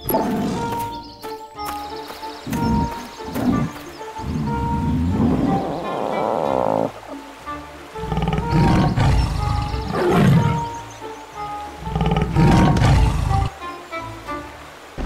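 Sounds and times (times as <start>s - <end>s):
light background music: 0.0s - 15.0s
tiger roaring: 2.8s - 7.0s, 8.0s - 10.6s, 11.8s - 13.6s.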